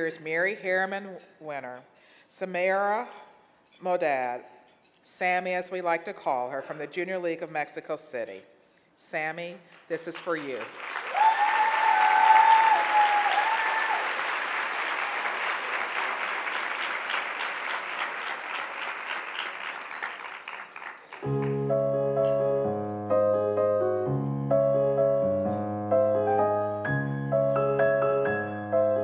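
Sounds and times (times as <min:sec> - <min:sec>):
audience applauding: 0:10.3 - 0:21.6
high-pitched whoop: 0:11.1 - 0:14.2
slow piano chords: 0:21.2 - 0:29.0.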